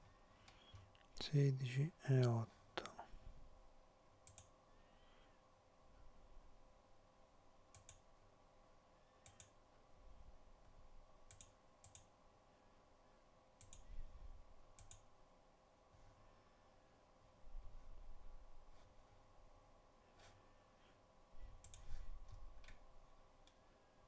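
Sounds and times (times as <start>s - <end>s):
low electrical hum: 0.0s - 24.0s
computer mouse clicks: 4.2s - 4.6s, 7.7s - 8.1s, 9.2s - 9.6s, 11.3s - 12.1s, 13.6s - 14.0s, 14.7s - 15.1s, 21.6s - 22.8s.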